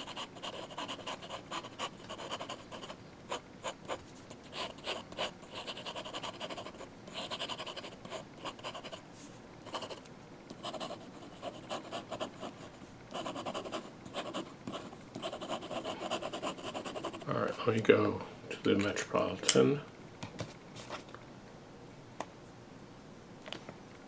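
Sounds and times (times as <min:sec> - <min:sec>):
pen nib scratching on paper: 0:00.0 - 0:09.0, 0:09.7 - 0:17.3.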